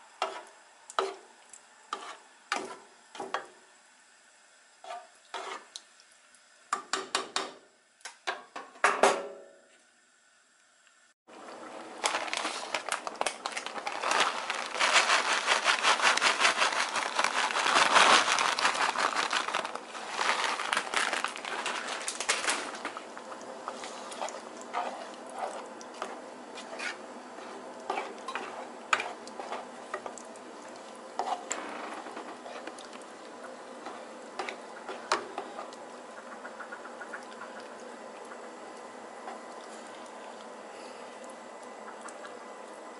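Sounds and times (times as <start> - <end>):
utensil stirring food in a pan: 0.1 - 3.6, 4.8 - 6.1, 13.5 - 37.8
utensil scraping a pan: 1.9 - 2.8, 4.8 - 5.7, 23.7 - 30.1, 31.2 - 32.7
plastic bag crinkling: 11.8 - 23.2.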